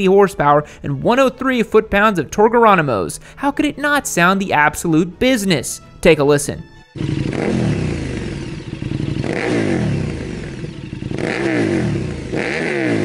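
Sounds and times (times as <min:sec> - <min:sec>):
motorcycle engine revving: 0:07.0 - 0:13.0.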